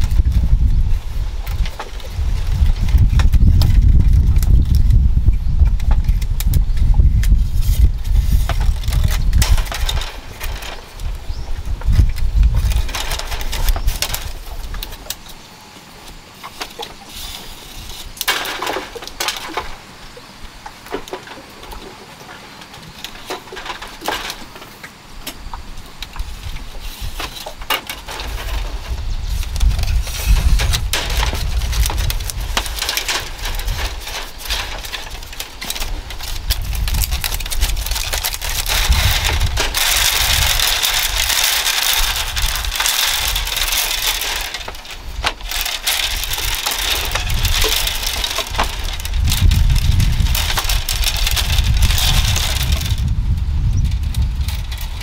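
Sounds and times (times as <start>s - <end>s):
bamboo strips clicking and rustling: 0.0s - 55.0s
low rumble: 45.4s - 55.0s.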